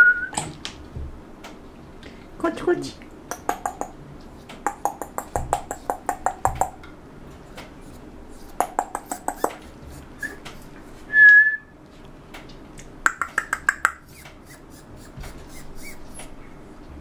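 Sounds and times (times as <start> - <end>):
tongue clicking: 3.3 - 4.0, 4.6 - 6.8, 8.6 - 9.6, 12.8 - 14.6.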